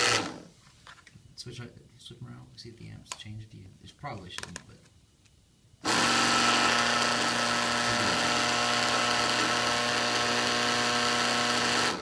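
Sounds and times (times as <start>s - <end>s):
pump motor running: 5.8s - 12.0s.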